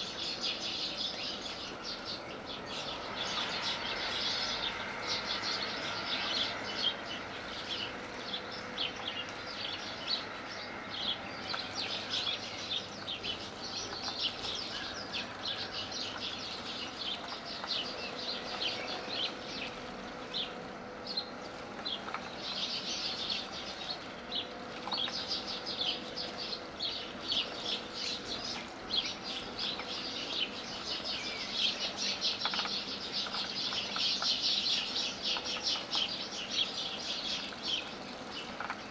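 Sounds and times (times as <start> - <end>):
birds splashing in water: 2.9 - 38.9.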